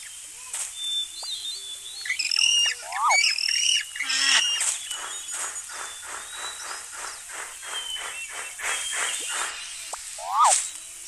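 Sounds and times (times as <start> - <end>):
animal calls with bending pitch: 2.1 - 4.7, 9.0 - 10.7.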